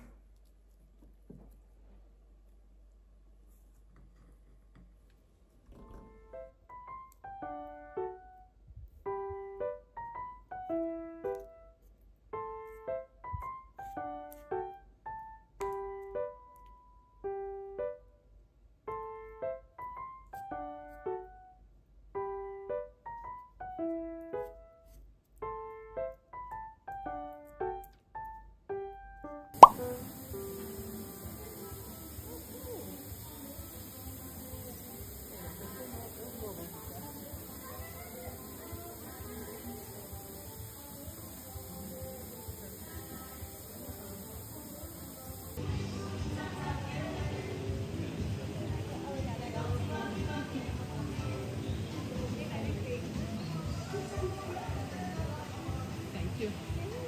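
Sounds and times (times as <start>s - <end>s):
gentle piano melody: 6.1s - 18.2s, 18.9s - 35.3s.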